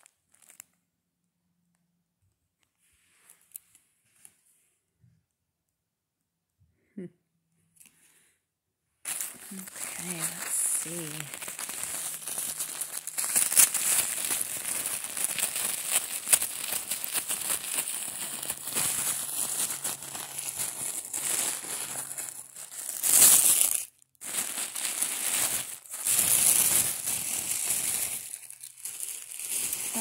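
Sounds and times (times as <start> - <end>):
tissue paper crinkling: 0.0 - 0.7, 9.0 - 30.0.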